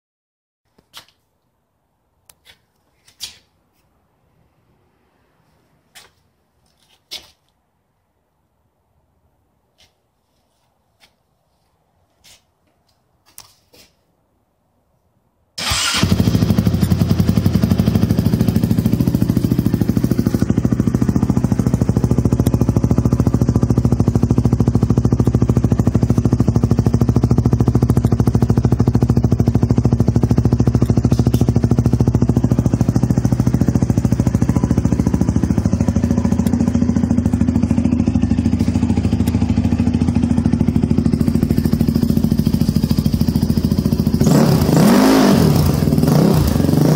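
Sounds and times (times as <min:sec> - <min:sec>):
quad engine starting and idling: 0:15.6 - 0:46.9.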